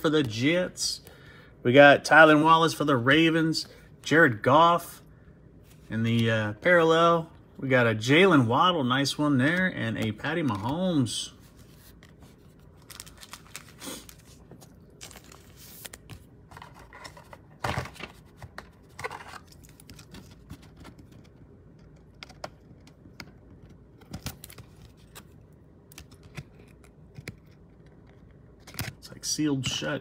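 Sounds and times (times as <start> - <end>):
plastic sleeve crinkling: 10.0 - 18.3.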